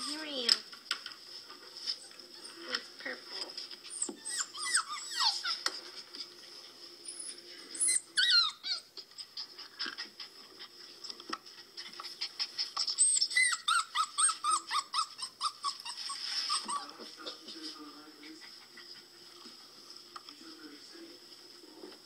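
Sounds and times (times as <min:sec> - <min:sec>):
puppies whimpering: 0:03.8 - 0:06.3, 0:07.1 - 0:10.7, 0:11.6 - 0:17.6.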